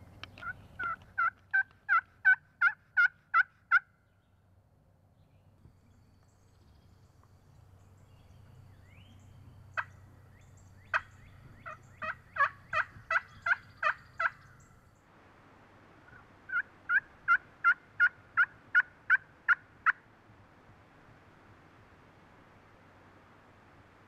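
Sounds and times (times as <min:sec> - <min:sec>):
turkey yelping: 0:00.4 - 0:03.9, 0:10.9 - 0:14.4, 0:16.1 - 0:20.0.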